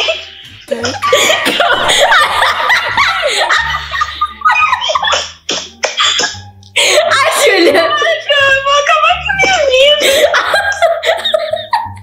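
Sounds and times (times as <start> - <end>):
girls laughing and giggling: 0.0 - 8.8, 9.4 - 12.0.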